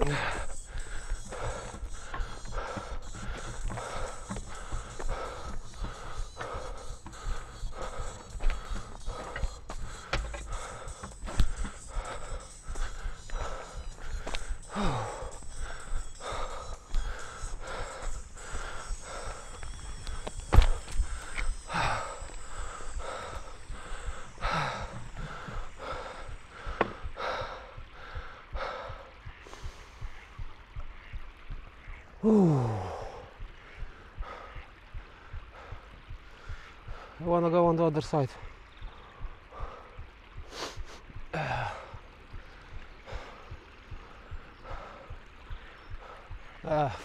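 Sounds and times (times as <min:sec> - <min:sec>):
heavy quick breathing: 0:00.0 - 0:29.9, 0:39.5 - 0:42.0
soft regular thumps: 0:00.0 - 0:32.1.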